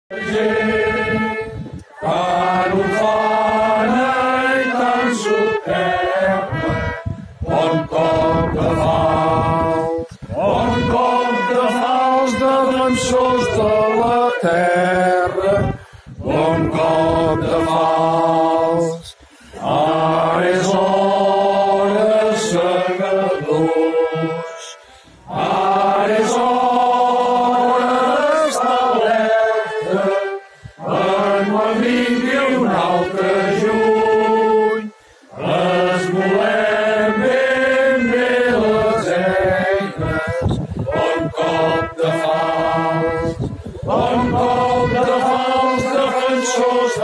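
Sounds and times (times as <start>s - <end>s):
choir singing: 0.1s - 47.0s.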